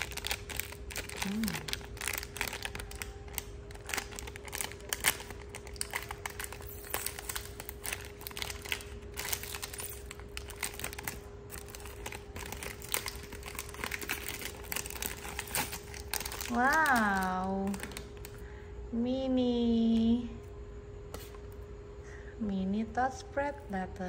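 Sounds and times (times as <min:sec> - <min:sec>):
plastic snack packet crinkling: 0:00.0 - 0:18.4.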